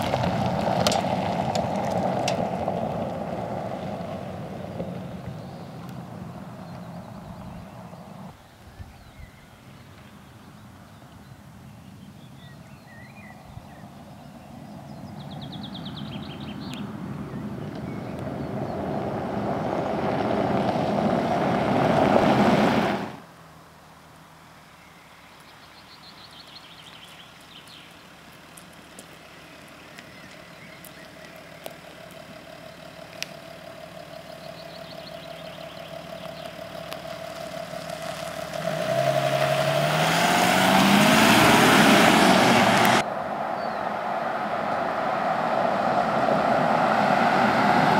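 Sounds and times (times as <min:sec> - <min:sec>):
diesel car driving and accelerating: 0:00.0 - 0:47.9
birds chirping: 0:04.6 - 0:19.3, 0:24.6 - 0:37.5, 0:38.1 - 0:44.1.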